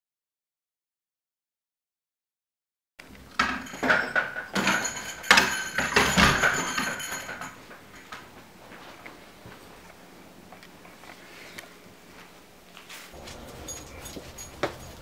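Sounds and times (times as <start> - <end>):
knocks and clatters: 3.1 - 8.3, 13.2 - 15.0
rustling: 10.9 - 15.0.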